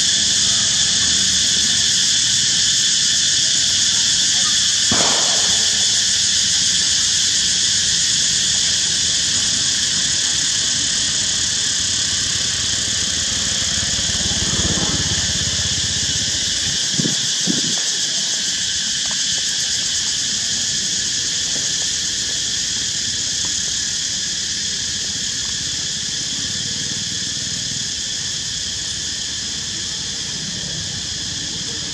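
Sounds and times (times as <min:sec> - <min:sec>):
insects droning: 0:00.0 - 0:31.9.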